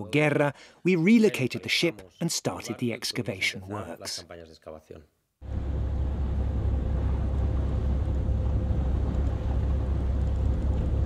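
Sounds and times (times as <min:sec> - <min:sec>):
boat engine droning: 0:05.4 - 0:11.0
faint steady hum: 0:05.4 - 0:11.0.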